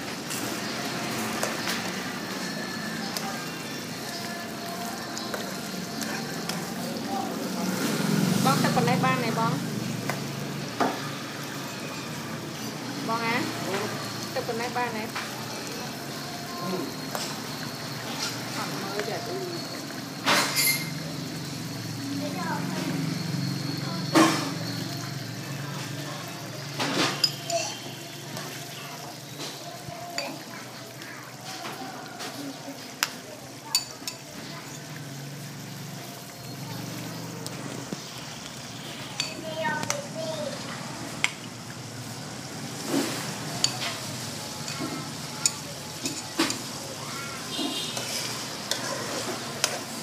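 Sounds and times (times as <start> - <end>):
metal ladle scraping pan: 20.3 - 21.0, 47.5 - 50.0.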